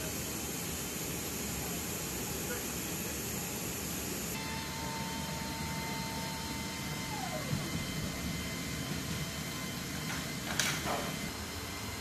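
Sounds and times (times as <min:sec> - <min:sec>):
machinery hum and hiss: 0:00.0 - 0:12.0
high whine dropping in pitch: 0:04.4 - 0:12.0.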